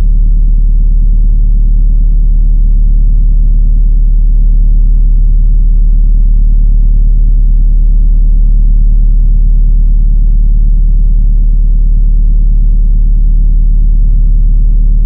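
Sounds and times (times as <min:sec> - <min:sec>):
deep droning rumble: 0:00.0 - 0:15.0.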